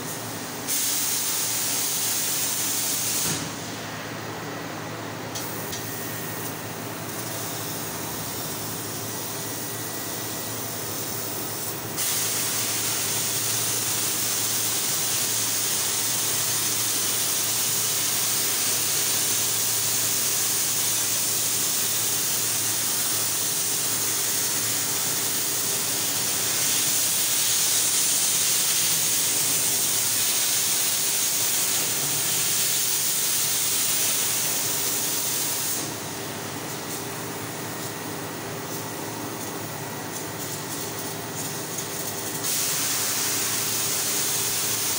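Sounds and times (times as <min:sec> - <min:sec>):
hiss of assist gas: 0:00.7 - 0:03.7, 0:12.0 - 0:35.9, 0:42.4 - 0:44.9.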